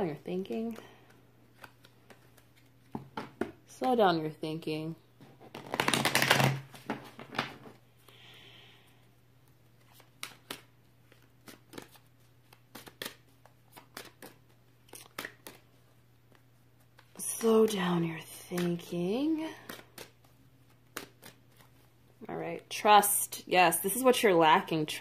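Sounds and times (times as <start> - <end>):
cards riffle shuffling: 5.5 - 7.5, 9.6 - 17.8, 18.4 - 19.0, 19.6 - 21.9.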